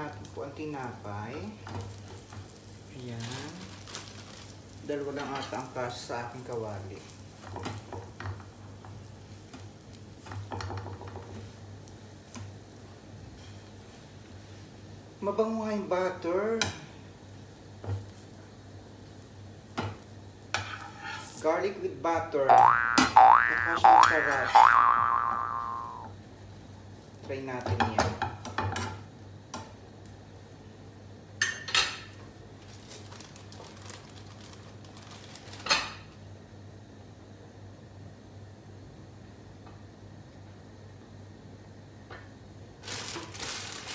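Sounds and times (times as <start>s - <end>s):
bread sizzling in pan: 0.0s - 21.8s, 24.7s - 27.6s, 31.4s - 36.2s, 42.7s - 43.9s
spatula scraping pan: 20.6s - 21.4s.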